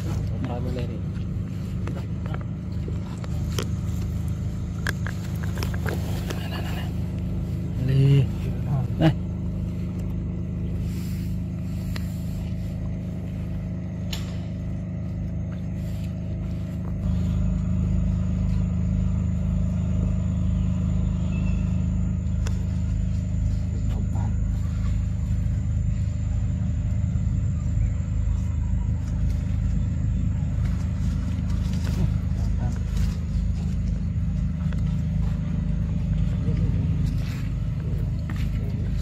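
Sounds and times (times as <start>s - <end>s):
low mechanical hum: 0.0s - 39.0s.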